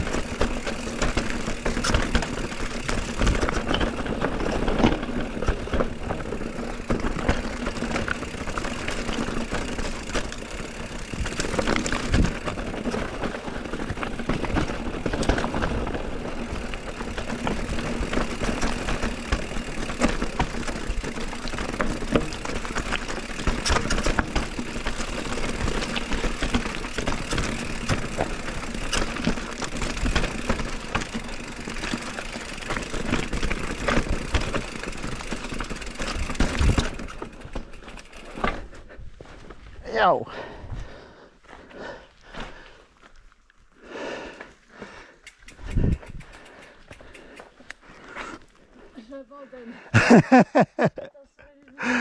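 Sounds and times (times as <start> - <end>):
wheels knocking on rocks: 0.0 - 39.6
bike tyres on rough trail: 0.0 - 51.0, 51.6 - 52.0.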